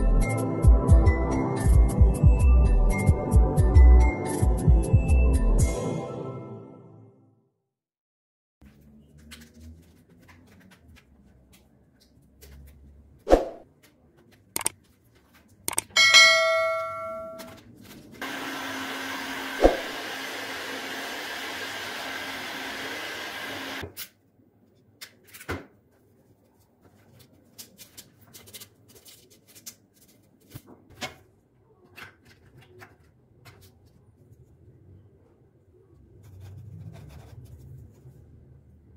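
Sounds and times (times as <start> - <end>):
bright chime ringing: 16.0 - 17.5
heat gun blowing whir: 18.2 - 23.8.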